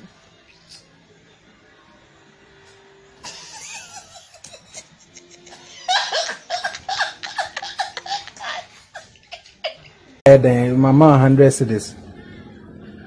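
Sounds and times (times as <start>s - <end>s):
woman laughing: 3.2s - 10.1s.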